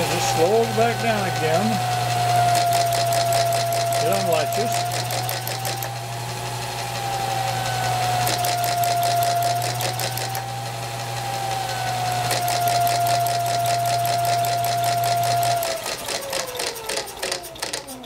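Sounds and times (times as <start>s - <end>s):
motor whine: 0.0s - 18.0s
fast mechanical clicking of cam gear: 2.4s - 6.0s, 8.2s - 10.4s, 12.2s - 18.0s.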